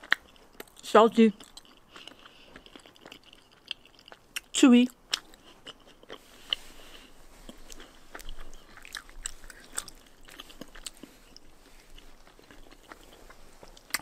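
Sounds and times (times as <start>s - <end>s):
mouth chewing food: 0.0s - 14.0s.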